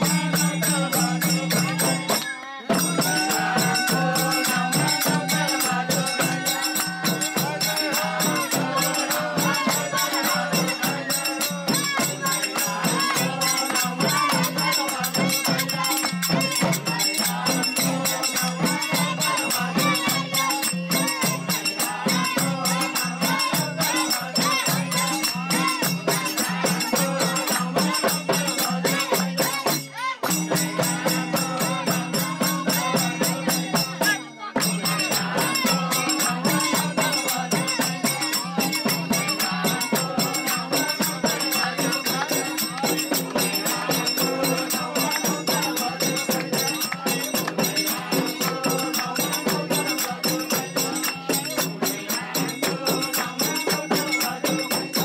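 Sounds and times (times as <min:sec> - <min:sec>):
jingling percussion rhythm: 0:00.0 - 0:55.0
people singing devotional music: 0:00.0 - 0:55.0.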